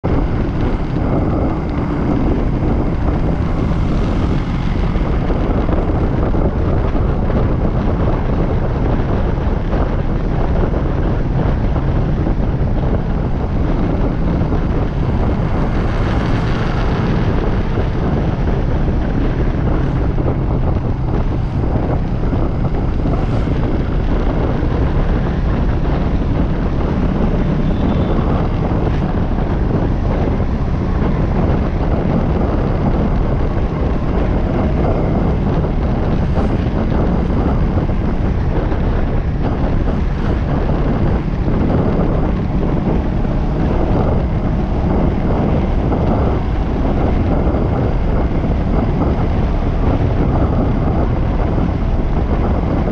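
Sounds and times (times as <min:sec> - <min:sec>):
low drone of travel noise: 0:00.0 - 0:52.9
wind rush on microphone: 0:00.0 - 0:52.9.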